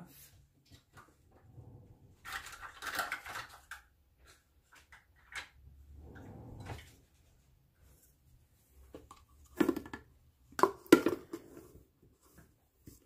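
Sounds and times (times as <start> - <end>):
rustling and scraping: 0.2 - 9.5.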